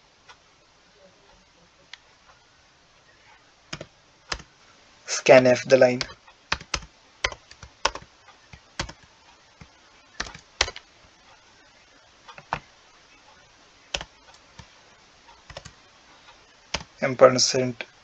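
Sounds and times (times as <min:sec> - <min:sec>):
typing on computer keyboard: 0:03.7 - 0:04.5, 0:05.9 - 0:10.9, 0:13.9 - 0:14.7, 0:15.4 - 0:15.8.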